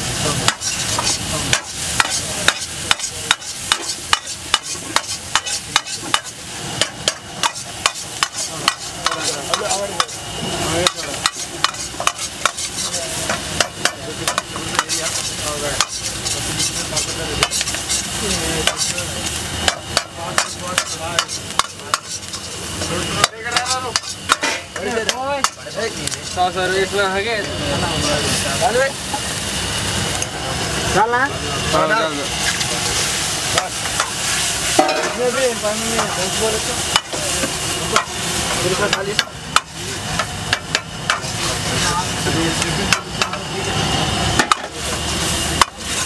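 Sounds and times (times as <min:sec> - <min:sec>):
vegetables sizzling in hot oil: 0:00.0 - 0:46.0
metal ladle clanking in wok: 0:34.8 - 0:35.2.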